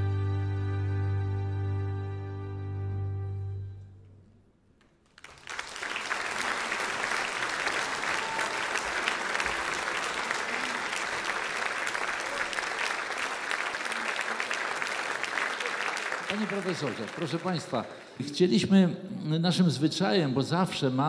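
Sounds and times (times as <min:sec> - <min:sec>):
audience applauding: 0:05.1 - 0:18.4.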